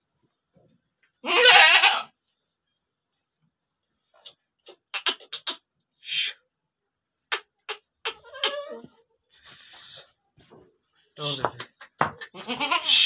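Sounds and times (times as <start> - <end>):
goat bleating: 1.2 - 2.1, 8.1 - 8.9, 12.3 - 13.0
brief breathy noise: 6.0 - 6.4.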